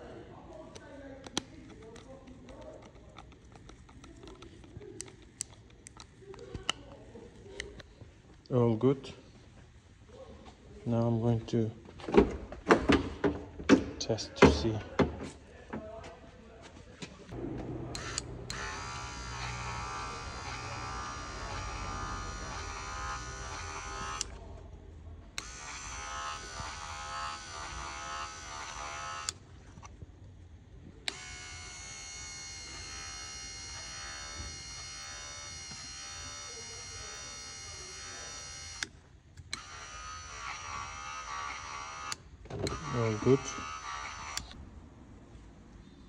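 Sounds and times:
electric motor whining: 17.4s - 24.4s, 31.1s - 38.9s, 39.5s - 44.6s.

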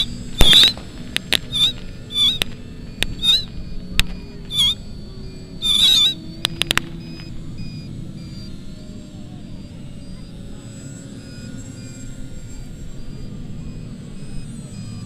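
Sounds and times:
short squawking calls: 0.0s - 0.8s, 1.5s - 2.4s, 3.1s - 3.6s, 4.5s - 4.8s, 5.6s - 6.2s
pyrotechnic charges cracking: 0.3s - 3.5s.

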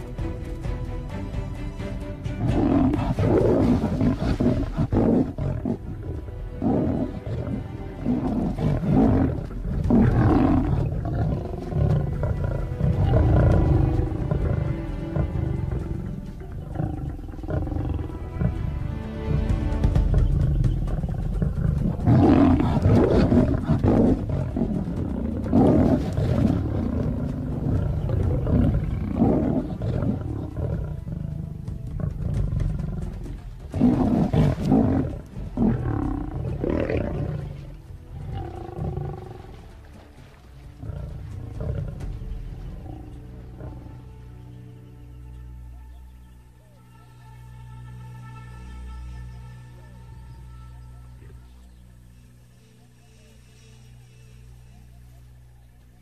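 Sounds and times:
background music: 0.0s - 56.0s
lions growling and roaring: 2.3s - 44.6s.

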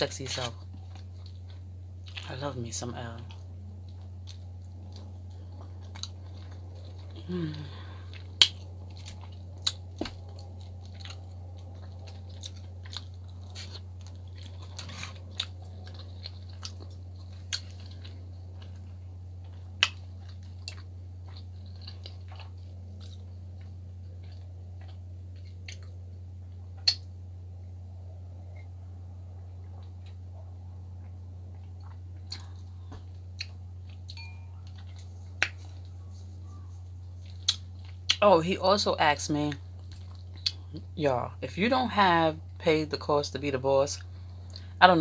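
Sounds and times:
low electrical hum: 0.0s - 45.0s
wet chewing clicks and smacks: 3.2s - 7.2s, 7.8s - 27.2s, 29.4s - 38.2s, 39.5s - 40.8s.

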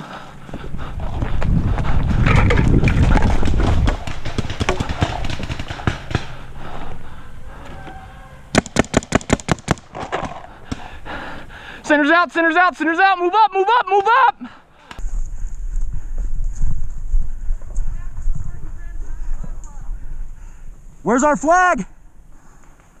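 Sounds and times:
running footsteps on dirt and leaves: 0.0s - 7.0s
heavy rumble of movement: 0.0s - 8.6s
paintball marker shots: 8.6s - 10.9s.

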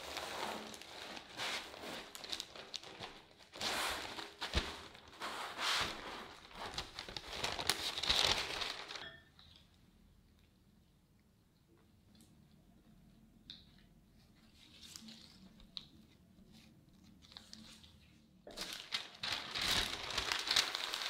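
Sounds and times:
baking paper rustling: 0.0s - 9.1s, 14.6s - 21.0s.

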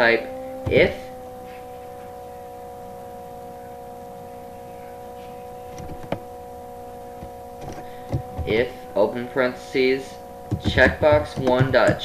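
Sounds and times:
steady electrical hum: 0.0s - 12.0s.

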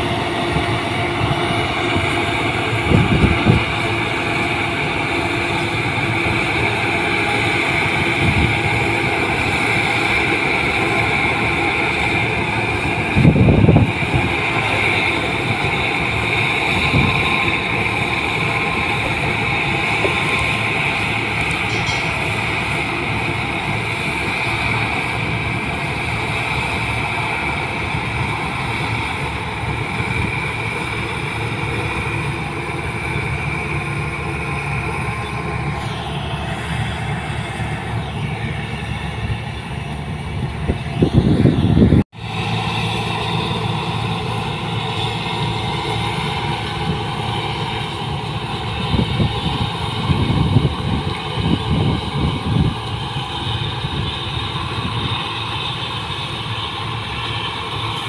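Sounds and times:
combine harvester engine running: 0.0s - 58.0s
high steady whine: 0.0s - 58.0s.

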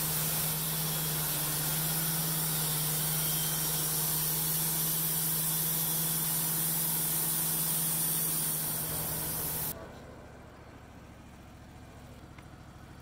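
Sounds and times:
band saw blade hissing in wood: 0.0s - 9.8s
sawmill motor drone: 0.0s - 10.4s.

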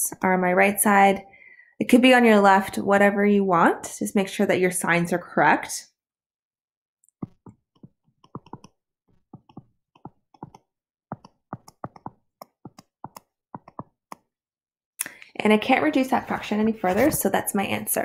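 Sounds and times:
stylus tapping on tablet screen: 7.2s - 14.4s.

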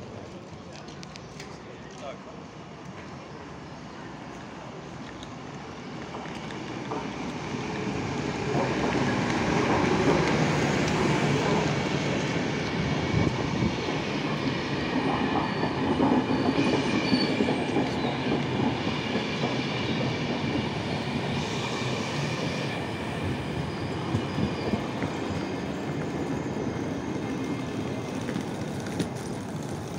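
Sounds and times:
faint wheel squeal: 15.4s - 18.2s, 21.4s - 27.8s.

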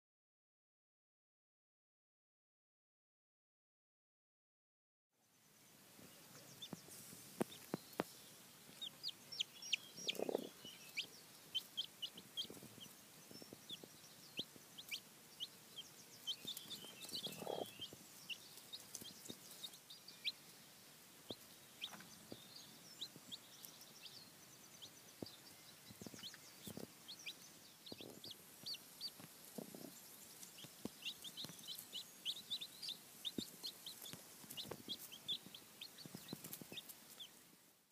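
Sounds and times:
chicks peeping: 6.0s - 37.4s
hen clucking: 8.7s - 20.4s, 26.0s - 37.3s.

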